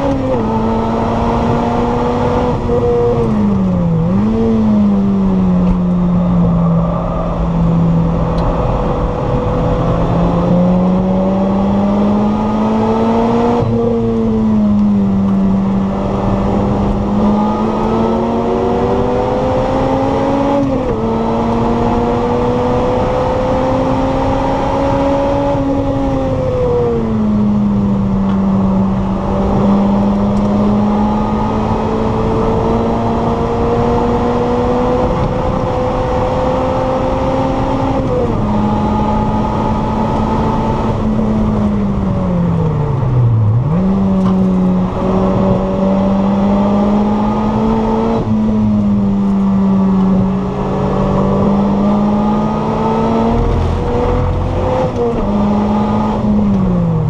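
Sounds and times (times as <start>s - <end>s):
car engine accelerating hard: 0.0s - 57.0s.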